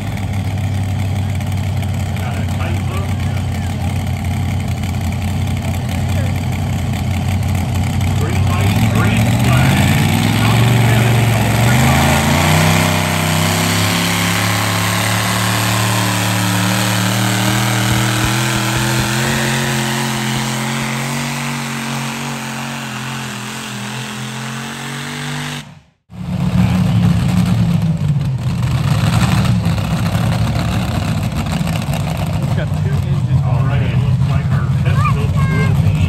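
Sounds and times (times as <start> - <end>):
tractor engine running under load: 0.0 - 24.1
rough loud engine: 0.0 - 36.0.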